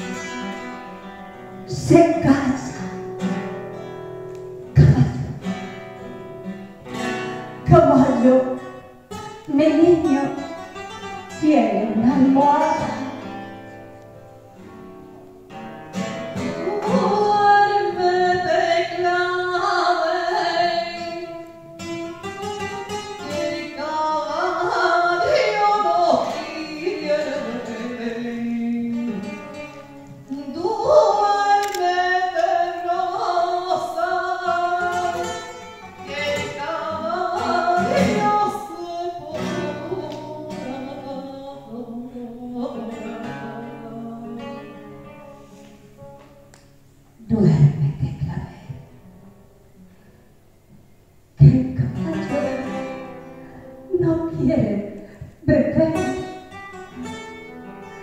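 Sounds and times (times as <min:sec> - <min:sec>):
spanish guitar: 0:00.0 - 0:58.0
woman singing into microphone: 0:01.7 - 0:03.0, 0:04.7 - 0:05.5, 0:07.6 - 0:08.8, 0:09.5 - 0:10.6, 0:11.3 - 0:13.2, 0:16.4 - 0:21.6, 0:23.2 - 0:45.2, 0:51.4 - 0:53.1, 0:53.9 - 0:56.3.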